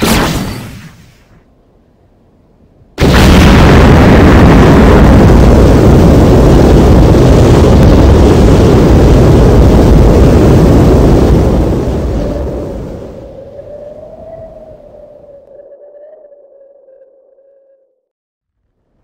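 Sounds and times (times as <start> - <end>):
explosion blast: 3.0 - 13.0
long deep rumble: 3.0 - 18.1.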